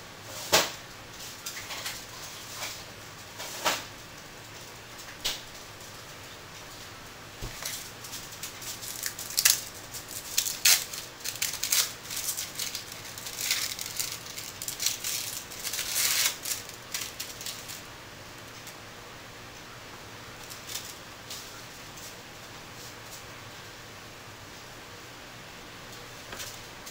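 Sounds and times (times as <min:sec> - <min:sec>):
plastic wrapper crinkling: 0:07.4 - 0:17.9.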